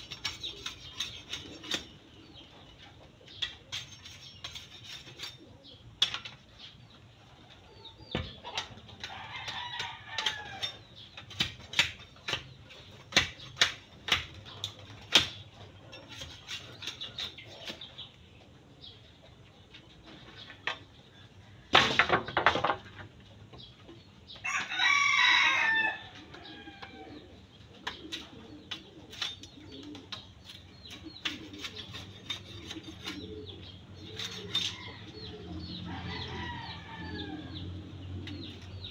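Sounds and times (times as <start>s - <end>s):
chickens calling: 0.0s - 38.9s
rooster crowing: 24.4s - 27.2s, 35.8s - 37.6s.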